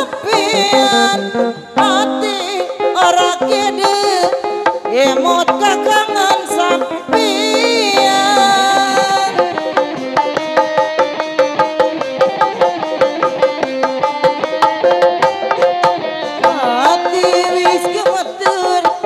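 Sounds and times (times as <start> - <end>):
fast drumming on hand drums: 0.0 - 19.0
reedy wind instrument melody: 0.3 - 2.2.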